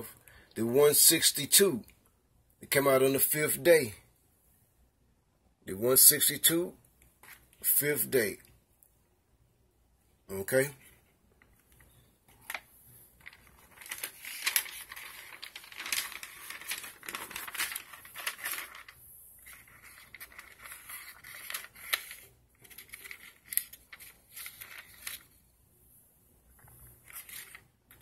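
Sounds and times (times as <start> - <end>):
paper rustling and crinkling: 10.8 - 25.4, 26.6 - 28.0.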